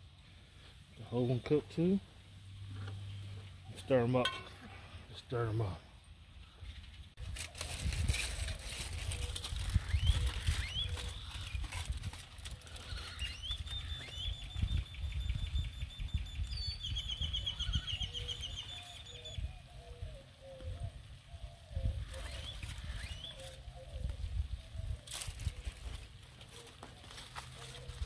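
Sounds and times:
wind on microphone: 7.2s - 26.0s
bird singing: 9.4s - 25.5s.

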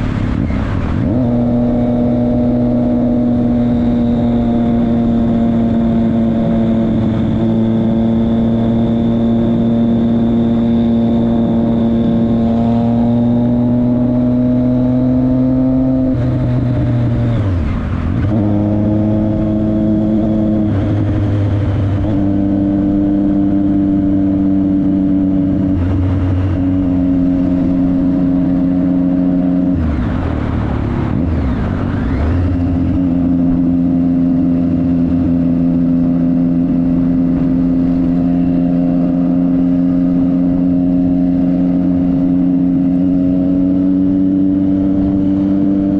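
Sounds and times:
motorcycle engine running: 0.0s - 45.9s.

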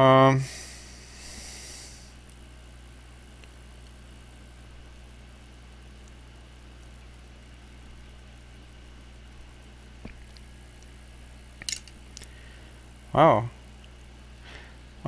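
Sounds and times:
background hiss: 0.0s - 15.0s
low electrical hum: 0.0s - 15.0s
faint clicks of small parts: 11.6s - 12.4s.

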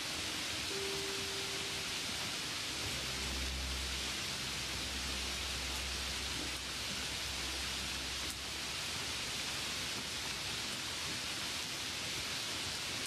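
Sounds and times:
rain falling on a puddle: 0.0s - 13.0s
low hum: 2.8s - 9.2s.

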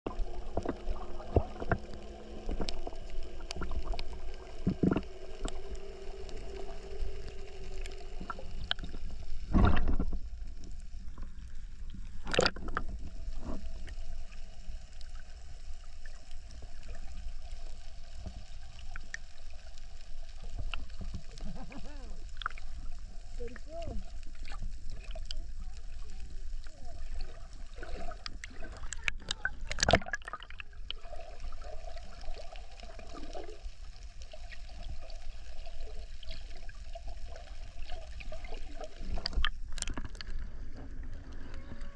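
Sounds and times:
underwater rumble: 0.0s - 41.9s
bursts of water noise: 0.1s - 41.9s
faint steady hum: 0.1s - 41.9s
underwater clicks and pops: 2.5s - 5.6s, 8.2s - 10.2s, 12.0s - 13.6s, 28.2s - 31.0s, 39.2s - 40.4s.

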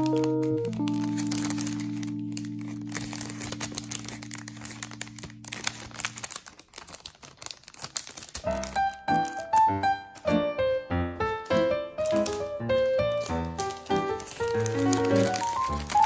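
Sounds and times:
background music chord: 0.0s - 5.9s
plastic bag crinkling: 0.0s - 10.7s, 11.3s - 16.0s.

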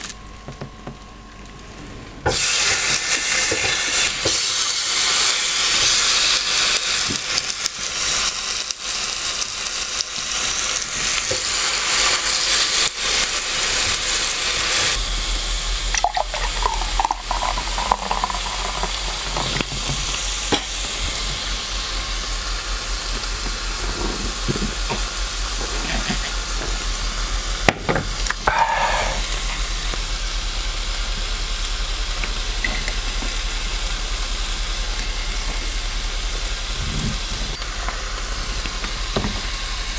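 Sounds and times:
pork sizzling on grill plate: 2.3s - 39.9s
steady low hum: 12.2s - 39.9s.

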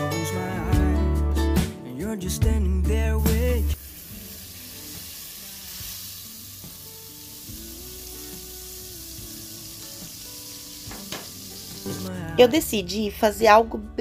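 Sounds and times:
pop song singing: 0.0s - 4.3s, 7.5s - 14.0s
butter sizzling in frying pan: 3.8s - 12.1s.

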